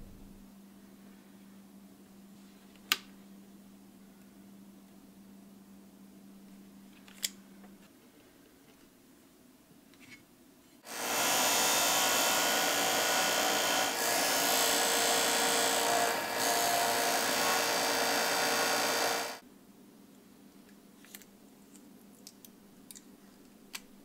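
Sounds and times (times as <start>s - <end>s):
disc sander grinding plastic: 10.9s - 19.4s.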